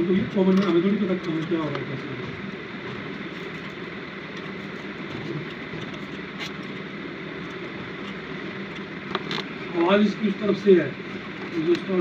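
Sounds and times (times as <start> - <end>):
air conditioner blower whirring: 0.0 - 12.0.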